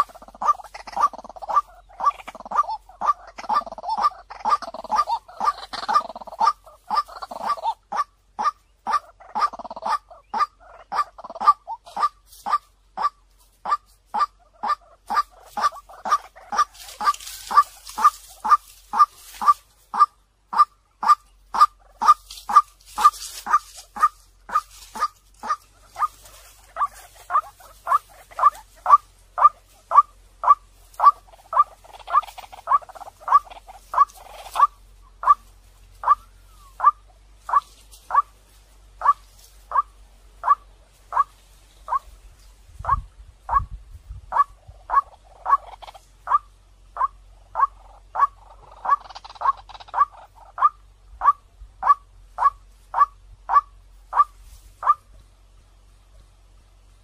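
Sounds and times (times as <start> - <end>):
waterhen calling: 0.0 - 55.2.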